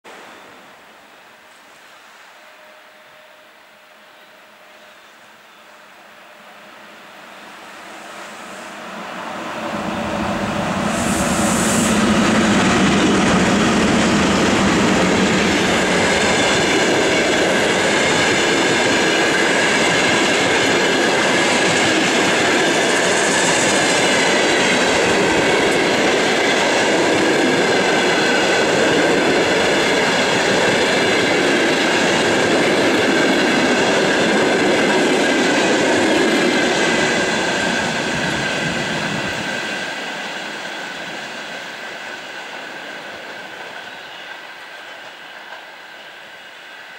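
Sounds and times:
electric locomotive passing: 0:00.1 - 0:46.9
faint high ringing tone: 0:00.2 - 0:07.9
train wheels running over rails: 0:07.7 - 0:46.9.

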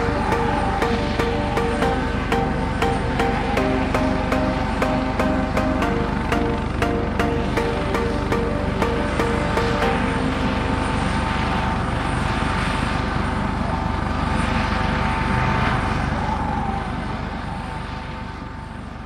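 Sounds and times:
helicopter rotor chop and engine: 0:05.9 - 0:18.9.

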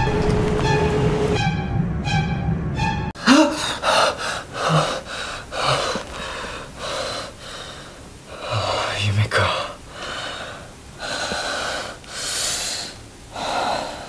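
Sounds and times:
tense pulsing music: 0:00.0 - 0:04.4
man panting heavily: 0:03.2 - 0:08.6, 0:09.9 - 0:14.0
man gasping: 0:03.2 - 0:08.8.

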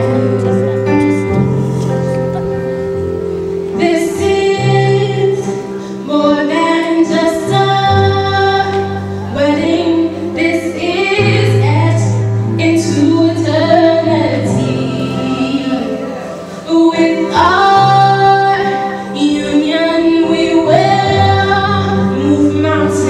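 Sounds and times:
sustained bass notes: 0:00.0 - 0:05.7
instrumental accompaniment: 0:00.0 - 0:23.0
woman singing into a microphone: 0:00.0 - 0:23.0.

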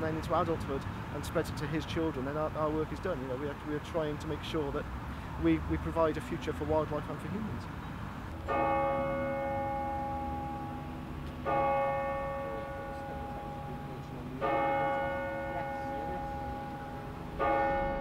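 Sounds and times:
clock tower bell striking: 0:08.4 - 0:18.0.

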